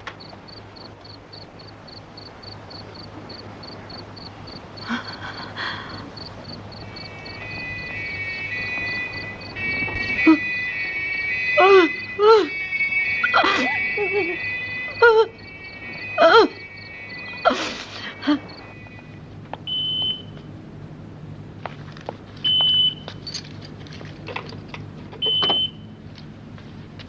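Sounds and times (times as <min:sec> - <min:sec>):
car telephone beeping: 0:00.2 - 0:05.2, 0:15.4 - 0:19.1, 0:19.7 - 0:20.4, 0:22.4 - 0:23.3, 0:25.2 - 0:26.0
woman sobbing: 0:04.6 - 0:06.4, 0:10.2 - 0:10.5, 0:11.6 - 0:12.6, 0:13.2 - 0:15.5, 0:16.2 - 0:16.7, 0:17.4 - 0:18.7.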